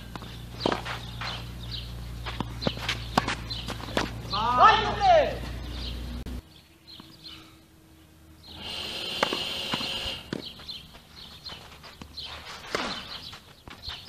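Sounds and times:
racket hitting tennis ball: 0:02.2 - 0:04.4.

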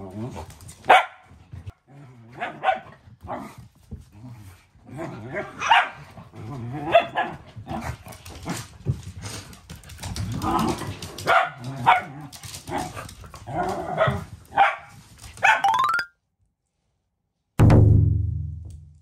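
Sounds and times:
dogs growling: 0:03.3 - 0:08.7, 0:10.0 - 0:14.1
dogs barking and yipping: 0:05.6 - 0:06.0, 0:11.2 - 0:15.7.

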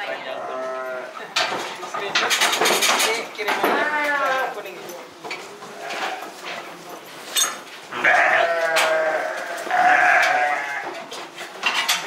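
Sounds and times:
sheep bleating: 0:00.3 - 0:01.2, 0:07.9 - 0:11.0.

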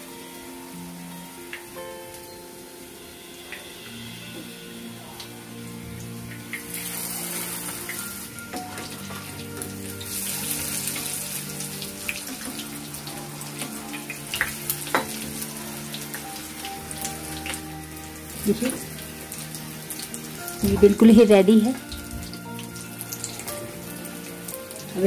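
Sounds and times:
food sizzling in oil: 0:00.0 - 0:25.0.

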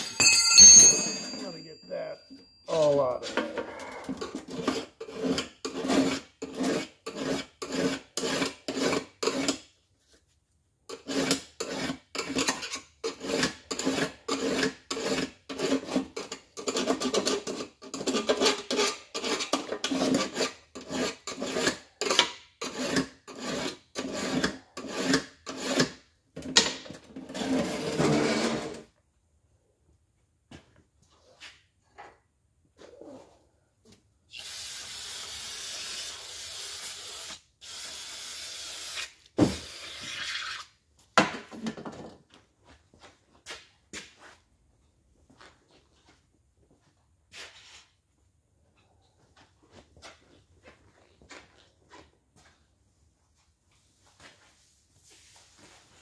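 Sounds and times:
hand file scraping metal: 0:03.3 - 0:09.7, 0:10.9 - 0:26.0, 0:27.1 - 0:28.9.

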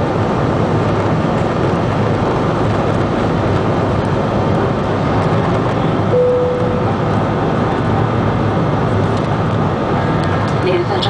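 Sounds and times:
aircraft cabin engine noise: 0:00.0 - 0:11.0
short steady tone: 0:06.1 - 0:07.0.

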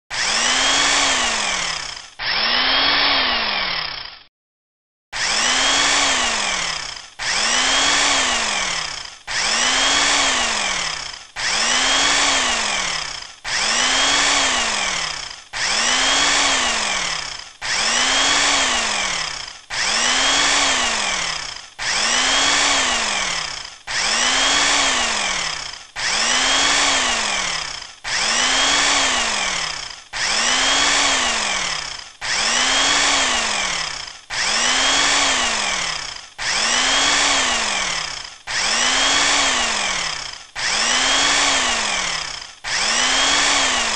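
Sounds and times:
bandsaw cutting wood: 0:00.1 - 0:04.3, 0:05.2 - 0:43.9.

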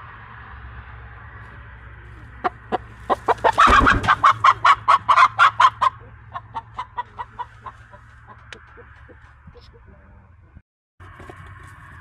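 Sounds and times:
chicken clucking: 0:02.2 - 0:10.0.

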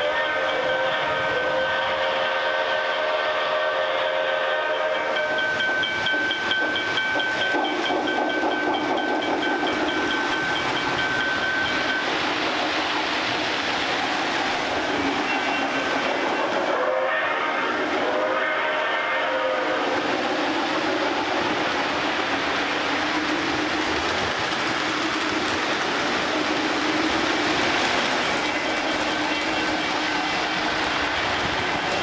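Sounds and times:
model train whistle: 0:00.0 - 0:05.6, 0:15.3 - 0:20.0.

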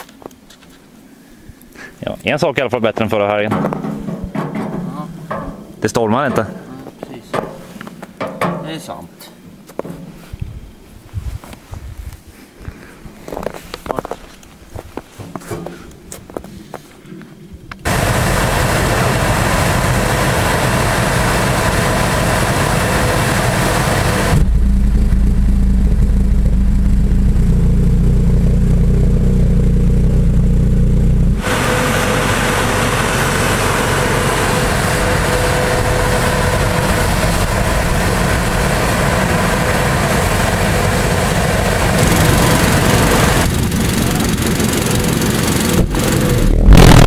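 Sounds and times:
pulse jet buzzing drone: 0:16.0 - 0:47.0.

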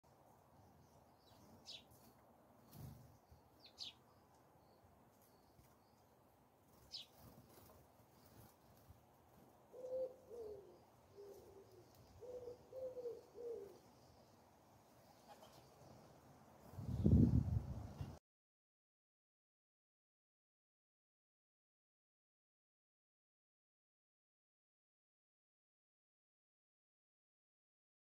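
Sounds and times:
dove cooing: 0:09.7 - 0:13.9.

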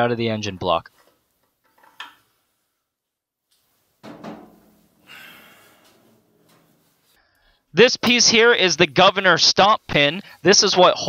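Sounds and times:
metal scraping and knocking: 0:04.0 - 0:05.0.

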